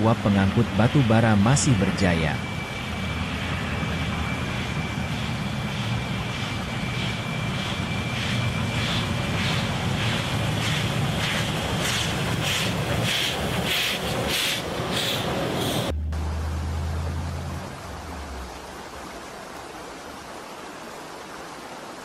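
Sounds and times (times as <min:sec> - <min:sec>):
steam locomotive rumble: 0:00.0 - 0:18.8
steam locomotive exhaust chuffs: 0:02.4 - 0:15.9.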